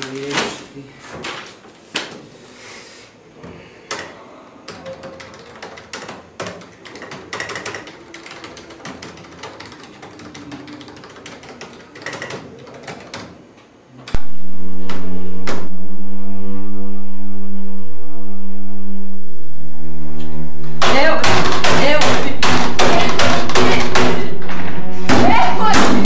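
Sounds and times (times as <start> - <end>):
keyboard typing: 3.9 - 13.4
low musical chord: 14.2 - 20.7.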